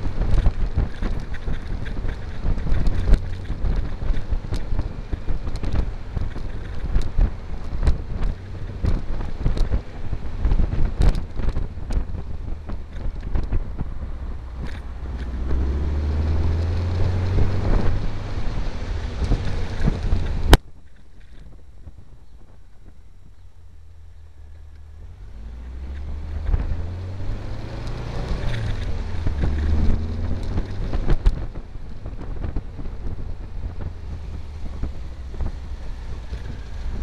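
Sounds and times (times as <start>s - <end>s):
buggy engine running: 0.0s - 37.0s
wind buffeting microphone: 0.0s - 37.0s.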